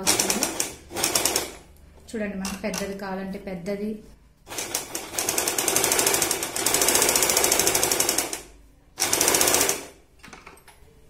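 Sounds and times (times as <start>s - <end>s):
electric sewing machine rattling: 0.0s - 1.6s, 4.5s - 10.0s.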